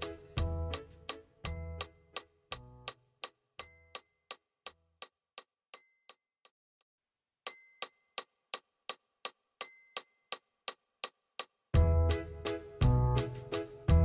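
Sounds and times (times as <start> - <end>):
clock-like ticking beat: 0.0 - 5.5, 7.8 - 13.2
bell-like chimes: 1.5 - 2.4, 3.6 - 4.4, 7.5 - 8.4.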